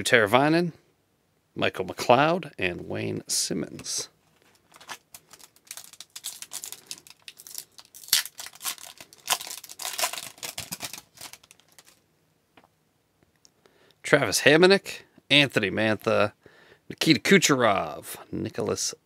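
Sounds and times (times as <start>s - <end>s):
cards rustling and clicking: 3.8s - 12.0s
foil wrapper crinkling and tearing: 4.5s - 12.0s.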